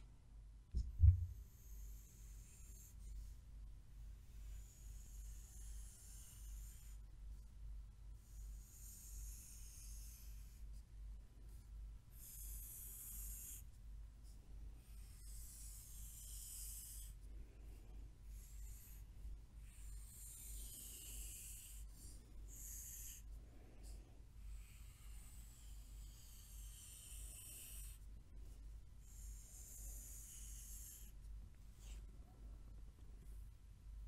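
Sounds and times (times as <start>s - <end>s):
low steady hum: 0.0s - 5.7s, 6.5s - 30.2s, 31.0s - 34.0s
pencil scratching on paper: 4.3s - 7.4s, 8.2s - 10.9s, 11.5s - 13.7s, 14.8s - 31.2s.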